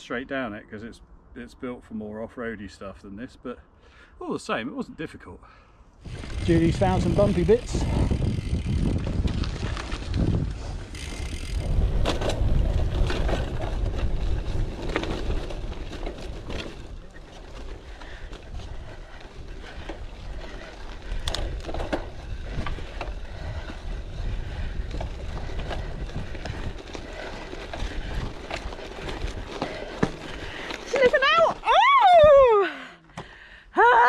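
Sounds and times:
bike rattling over bumps: 6.0s - 32.6s
wind buffeting microphone: 6.0s - 32.6s
bike tyres rolling on dirt: 6.0s - 32.7s.

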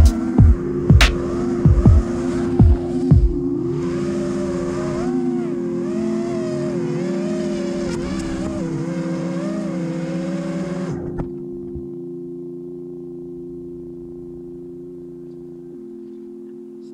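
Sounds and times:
quadcopter motors whining buzz: 0.0s - 12.0s.

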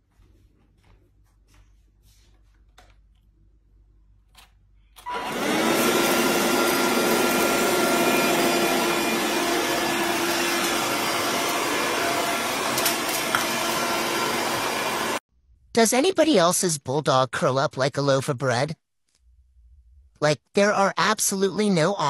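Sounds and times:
handheld vacuum cleaner whine: 5.0s - 15.2s.

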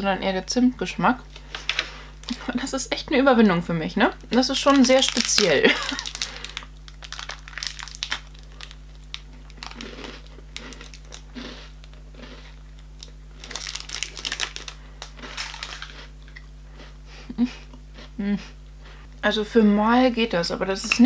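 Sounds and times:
plastic wrapper crinkling: 4.3s - 16.4s
biscuit crunching and chewing: 4.6s - 18.2s.

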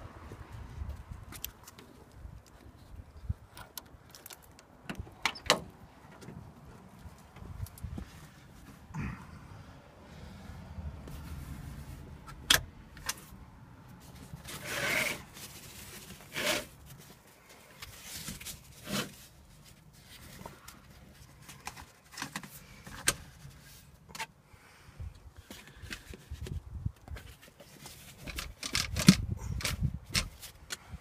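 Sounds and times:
seatbelt webbing sliding: 14.4s - 16.8s.

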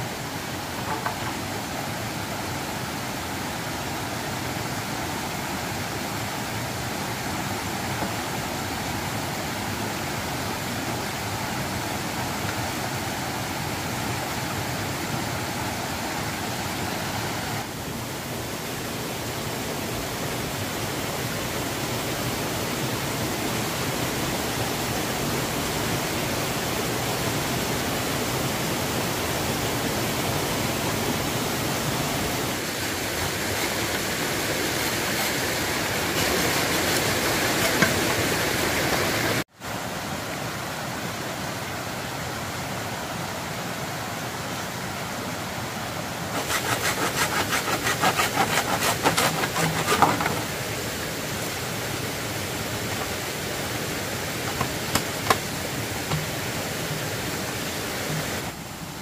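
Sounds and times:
steady rushing noise: 28.5s - 39.6s.

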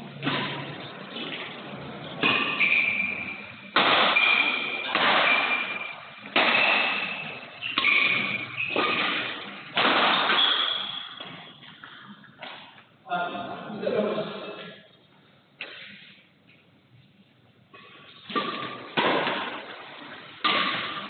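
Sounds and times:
badminton rackets hitting shuttlecock: 0.1s - 12.7s, 18.2s - 21.0s
shoe squeaks on court floor: 2.3s - 3.6s, 6.6s - 9.2s, 10.3s - 12.1s.

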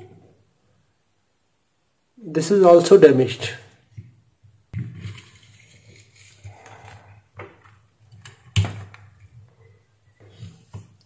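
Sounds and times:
hands rustling circuit board: 4.7s - 11.0s
plastic clicks and knocks: 7.4s - 9.4s.

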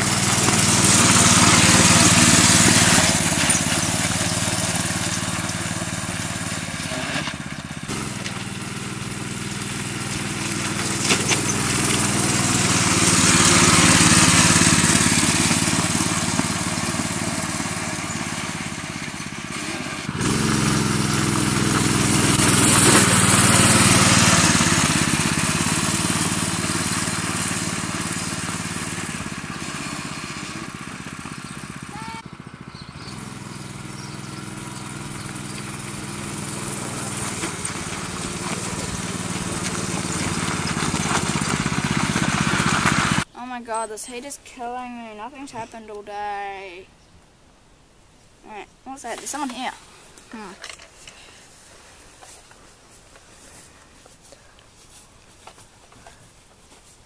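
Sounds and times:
small engine driving by: 0.0s - 43.3s.

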